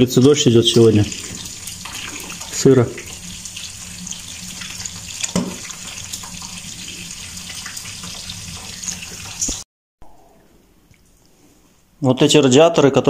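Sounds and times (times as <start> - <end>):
running and dripping water: 0.0 - 9.7.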